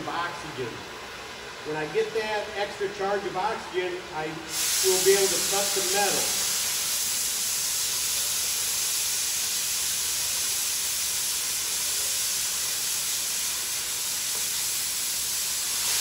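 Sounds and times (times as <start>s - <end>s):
cutting torch hissing: 4.4s - 16.0s.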